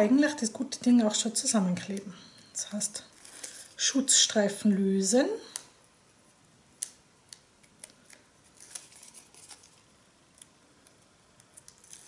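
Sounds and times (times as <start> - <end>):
tape backing peeling crackles: 3.1 - 3.7, 6.8 - 12.0.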